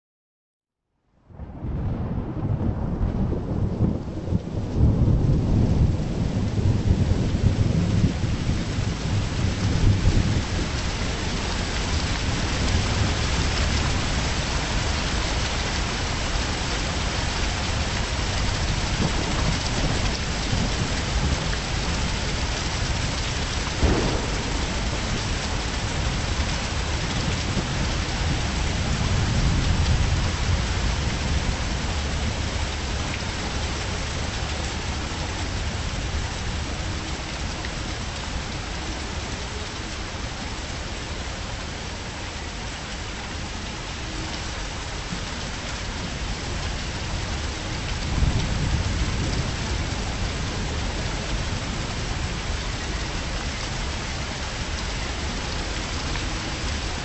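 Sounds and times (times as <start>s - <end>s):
heavy rain: 1.2s - 57.0s
thunder rumbling: 1.3s - 33.0s, 46.2s - 51.6s
sharp thunder crack: 23.8s - 28.0s.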